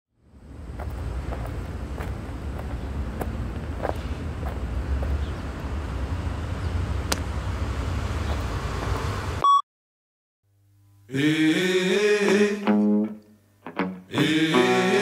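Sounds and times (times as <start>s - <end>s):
wind: 0.1s - 9.4s
distant traffic: 0.2s - 9.4s
loud high beep: 9.4s - 9.6s.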